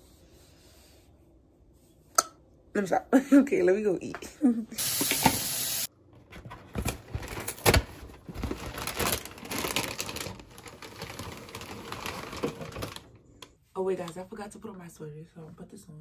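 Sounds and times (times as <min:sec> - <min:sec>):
plastic bag crinkling: 0:06.7 - 0:13.2.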